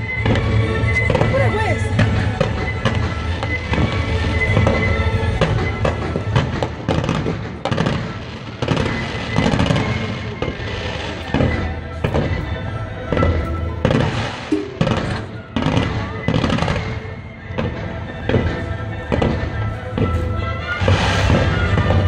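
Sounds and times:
fireworks bangs and crackles: 0.0s - 22.0s
music playing: 0.0s - 22.0s.

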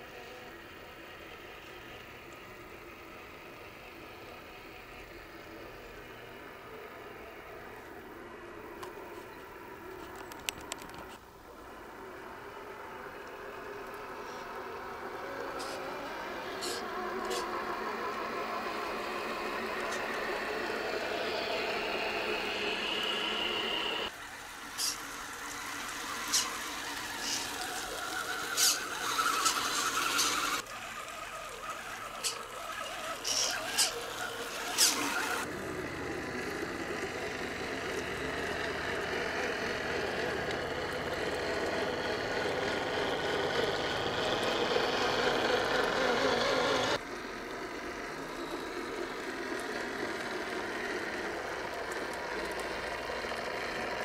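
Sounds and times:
sharp clicks: 10.1s - 11.2s
electric motors whining: 11.5s - 54.0s.

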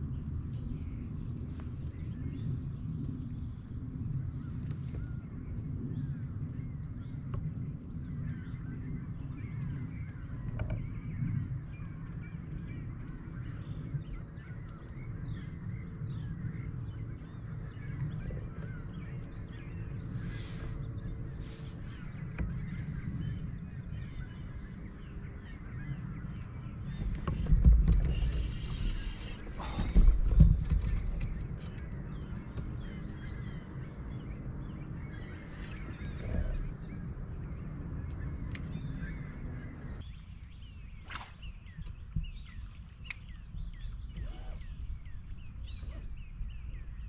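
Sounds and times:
steady low rumble: 0.0s - 47.0s
faint bird calls: 16.9s - 34.0s, 35.0s - 40.0s, 41.0s - 47.0s.

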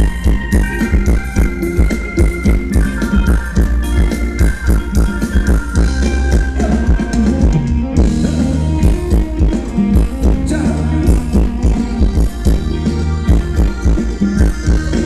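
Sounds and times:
loud dance music with drum beat: 0.0s - 15.0s.

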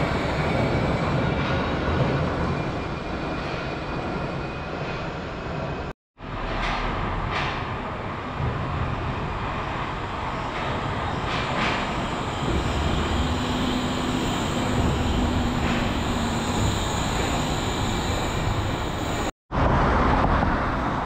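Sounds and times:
monorail train rumbling: 0.0s - 21.0s.

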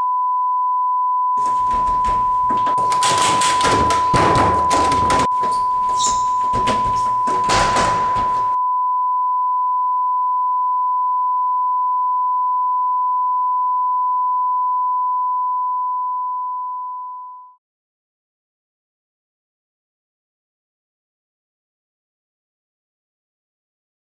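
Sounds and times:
banging and knocking on door: 1.4s - 8.6s
scuffling: 1.4s - 8.6s.

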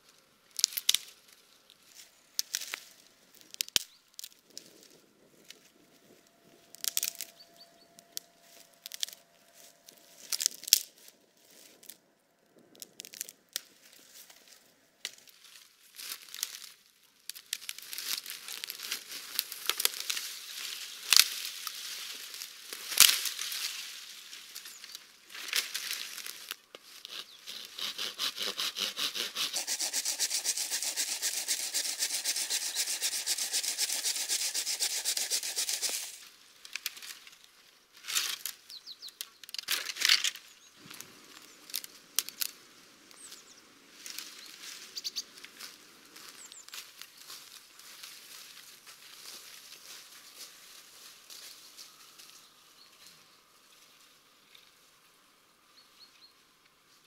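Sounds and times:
dry branches rustling and scraping: 0.0s - 55.2s
branches cracking: 0.6s - 12.0s, 12.7s - 52.4s
rapid scraping: 27.5s - 36.2s.

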